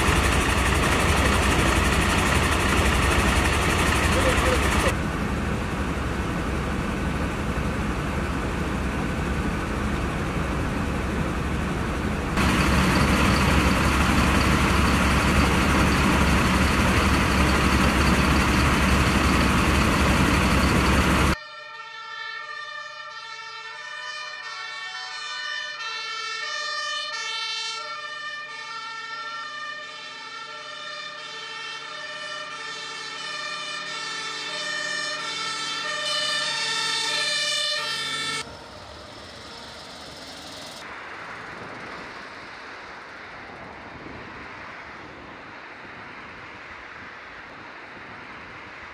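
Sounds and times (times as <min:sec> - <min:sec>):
two-tone emergency siren: 0:00.0 - 0:05.0, 0:12.4 - 0:40.9
fire engines running: 0:00.0 - 0:48.9.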